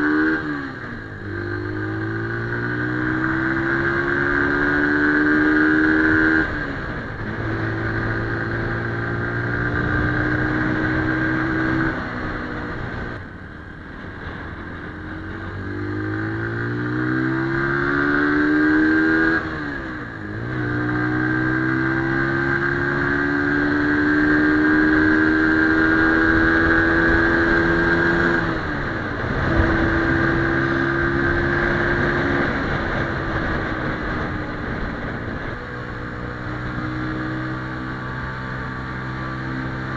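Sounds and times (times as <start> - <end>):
motorcycle engine accelerating: 0.0 - 39.9
wind on microphone: 25.7 - 39.9.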